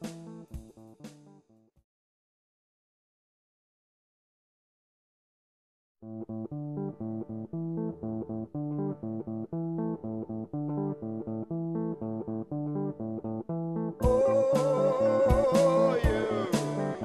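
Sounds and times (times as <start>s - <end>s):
picked guitar line: 0.0s - 0.6s, 6.0s - 17.0s
bass: 0.0s - 1.7s, 6.1s - 17.0s.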